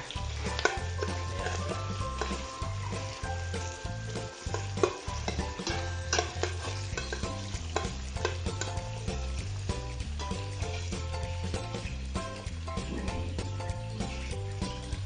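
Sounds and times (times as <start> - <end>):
onion sizzling in oil: 0.0 - 15.0
metal spoon scraping a pot: 0.2 - 3.4, 4.4 - 8.8
background music with bass beat: 5.3 - 15.0.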